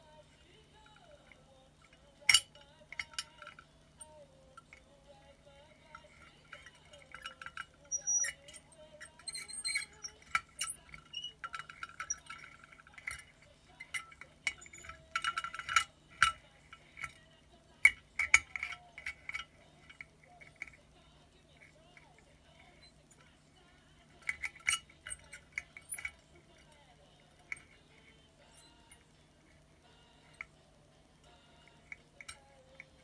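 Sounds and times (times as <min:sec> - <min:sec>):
plastic parts clinking in glass bottle: 0:00.8 - 0:04.9, 0:05.7 - 0:17.2, 0:17.8 - 0:20.9, 0:24.2 - 0:26.8, 0:27.4 - 0:29.0.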